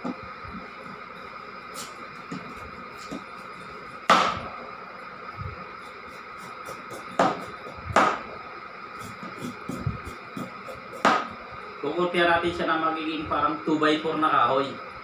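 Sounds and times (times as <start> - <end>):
knife chopping carrot: 6.1 - 8.3, 9.0 - 11.3.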